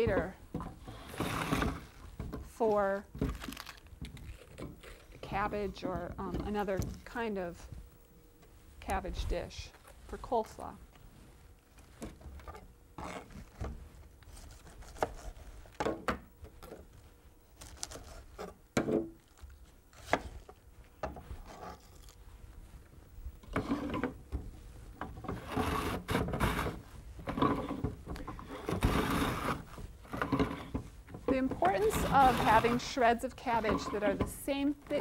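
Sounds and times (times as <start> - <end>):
knife cutting cabbage on board: 14.3 - 15.5
mandolin slicer rasping cabbage: 25.3 - 26.8, 28.4 - 30.7, 31.6 - 34.2.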